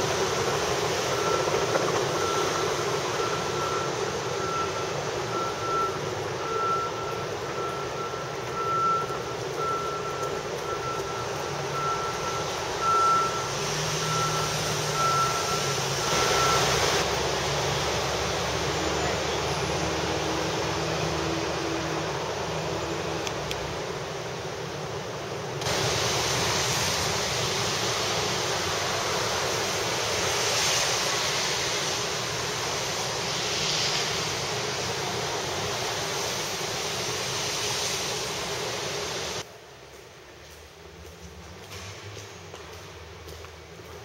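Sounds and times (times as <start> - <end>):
rain hissing on street: 0.0 - 44.0
repeating electronic beep: 1.1 - 17.0.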